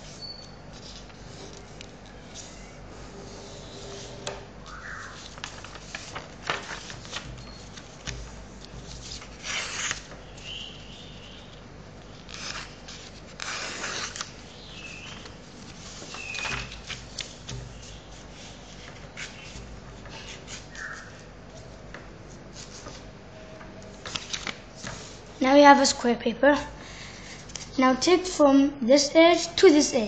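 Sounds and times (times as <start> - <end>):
paper rustling: 0.0 - 25.4
paper tearing: 5.0 - 10.2, 12.1 - 14.5.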